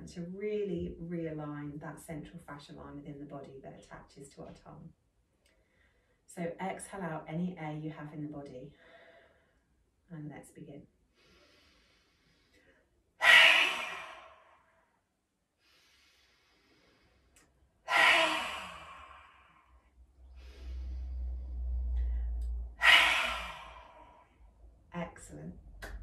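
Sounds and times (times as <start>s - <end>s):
quiet nasal inhale: 11.1s - 14.5s, 15.6s - 24.3s
forceful open-mouthed exhale: 11.2s - 14.7s, 15.6s - 24.3s.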